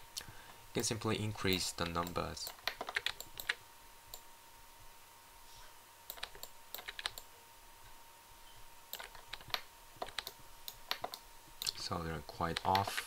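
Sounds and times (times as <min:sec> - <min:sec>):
faint electrical hum: 0:00.0 - 0:13.0
computer keyboard keys clicking: 0:01.8 - 0:03.6, 0:06.1 - 0:07.3, 0:08.9 - 0:11.8, 0:12.5 - 0:13.0.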